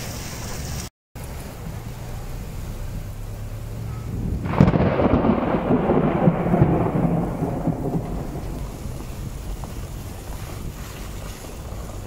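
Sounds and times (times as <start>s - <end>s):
falling rain: 0.0s - 12.0s
thunderclap crackling and rumbling: 3.5s - 12.0s.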